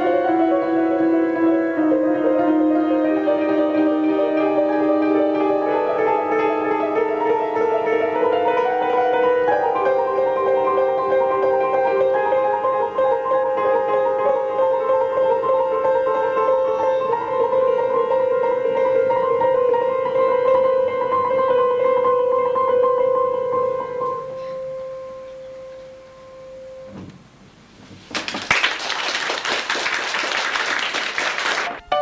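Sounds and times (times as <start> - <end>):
upright piano playing: 0.0 - 26.9, 29.8 - 32.0
audience applause: 28.1 - 31.8.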